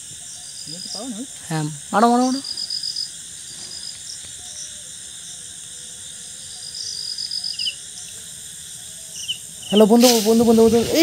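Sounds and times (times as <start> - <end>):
crickets chirping: 0.0 - 11.0
steady high insect hiss: 0.0 - 11.0.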